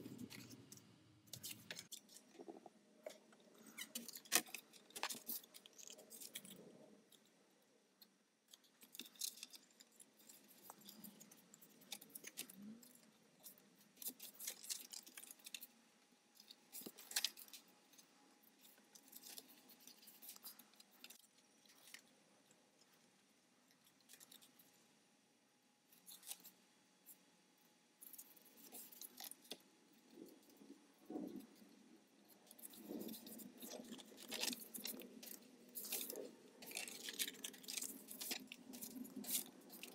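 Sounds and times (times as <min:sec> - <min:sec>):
paper rustling: 0:32.5 - 0:39.9.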